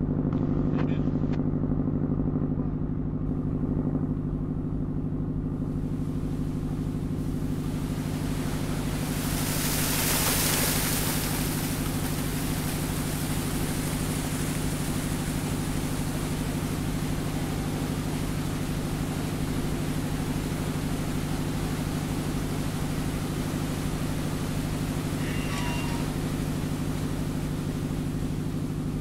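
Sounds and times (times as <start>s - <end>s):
boat engine idling: 0.0s - 29.0s
water pouring and splashing: 5.9s - 28.9s.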